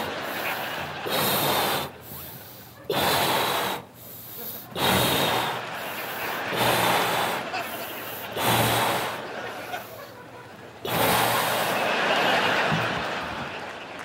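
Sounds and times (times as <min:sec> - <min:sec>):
person blowing into balloon: 0:00.0 - 0:09.2, 0:10.8 - 0:11.9.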